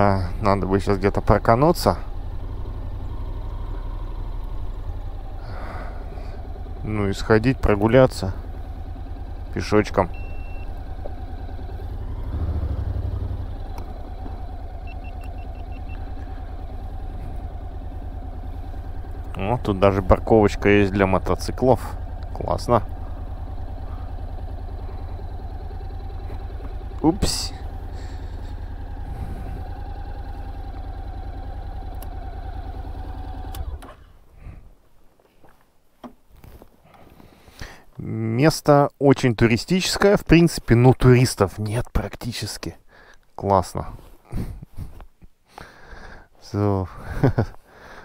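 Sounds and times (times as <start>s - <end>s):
motorcycle engine running: 0.0s - 34.6s, 47.0s - 47.5s.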